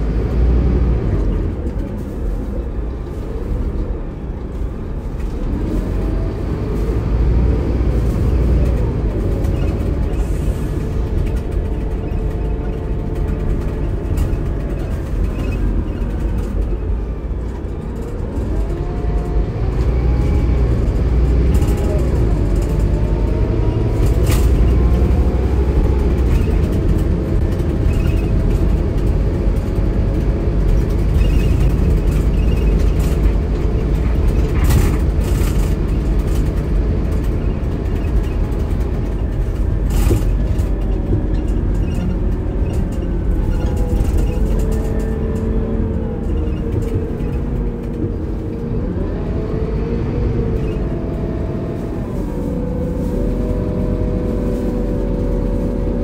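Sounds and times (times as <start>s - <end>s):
diesel coach engine rumble: 0.0s - 56.0s.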